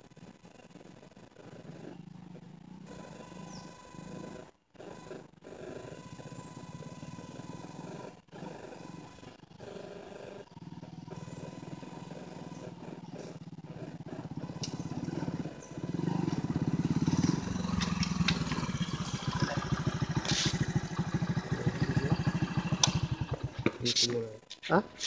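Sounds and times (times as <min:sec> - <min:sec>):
motorcycle engine running: 0:00.0 - 0:24.5.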